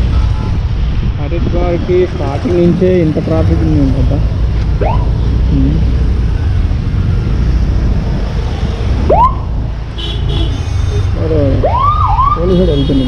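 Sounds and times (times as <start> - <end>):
motorcycle rumbling in traffic: 0.0 - 13.0
police siren whoop: 11.6 - 12.4.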